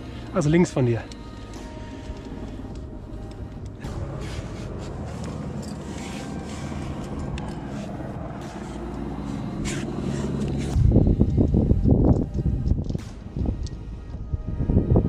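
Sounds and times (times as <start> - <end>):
clothing and rope rustles: 0.8 - 10.8
wind rumble on microphone: 10.3 - 15.0.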